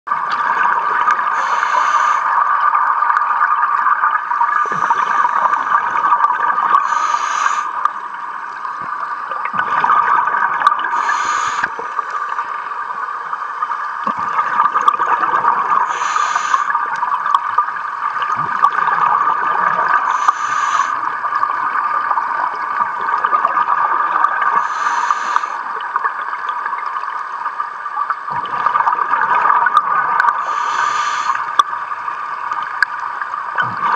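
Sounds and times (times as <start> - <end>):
exhaled bubbles underwater: 0.1 - 33.9
regulator hiss: 1.3 - 2.5, 4.5 - 5.8, 6.8 - 8.2, 10.9 - 12.4, 15.8 - 16.8, 20.0 - 21.1, 24.6 - 25.7, 30.4 - 31.6.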